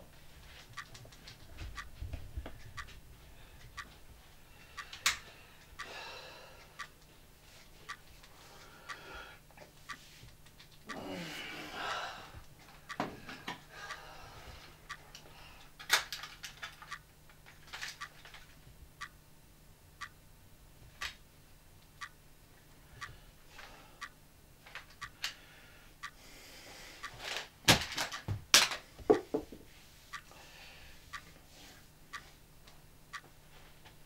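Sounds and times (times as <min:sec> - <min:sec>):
wall clock ticking: 0:00.0 - 0:11.1, 0:11.7 - 0:19.3, 0:19.9 - 0:20.2, 0:20.8 - 0:21.3, 0:21.9 - 0:22.3, 0:22.9 - 0:25.4, 0:26.0 - 0:26.3, 0:26.9 - 0:30.4, 0:31.0 - 0:33.4
knocks and rattles of clock: 0:00.7 - 0:03.0, 0:03.6 - 0:03.9.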